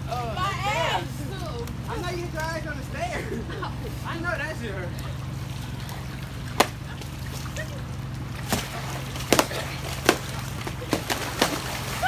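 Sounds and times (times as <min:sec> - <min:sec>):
pool water sloshing: 0:00.0 - 0:12.0
steady low hum: 0:00.0 - 0:12.0
foam noodles slapping: 0:06.5 - 0:07.5, 0:08.4 - 0:12.0.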